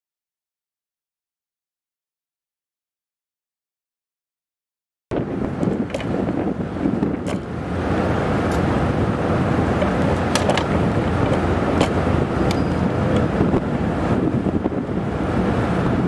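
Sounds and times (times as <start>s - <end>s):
low rumble of ship engines: 5.1s - 16.0s
wind buffeting microphone: 5.1s - 16.0s.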